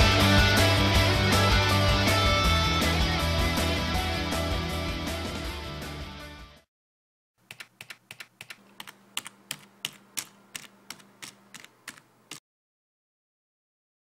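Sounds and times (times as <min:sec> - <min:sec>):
background music: 0:00.0 - 0:06.6
keyboard typing clicks: 0:07.4 - 0:12.4.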